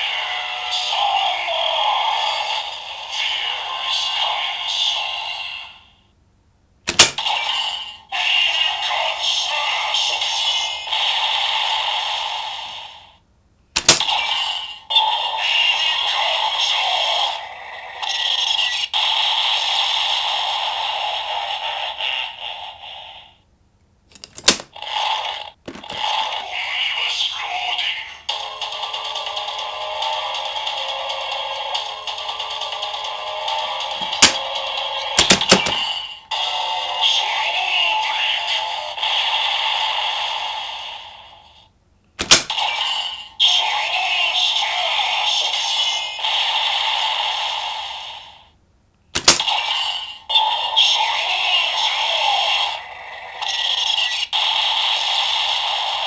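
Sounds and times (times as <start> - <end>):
toy speaker sound effect: 0.0 - 5.8, 6.9 - 13.0, 13.8 - 23.3, 24.3 - 41.2, 42.2 - 48.4, 49.2 - 56.0
toy announcement: 0.0 - 5.9, 6.9 - 11.2, 13.8 - 19.0, 24.8 - 39.1, 42.5 - 46.3, 49.2 - 56.0
sharp crack: 13.7 - 14.1, 34.0 - 34.5, 42.2 - 42.6, 49.2 - 49.5
plastic clicks: 24.1 - 24.7, 34.0 - 34.4, 49.2 - 49.4.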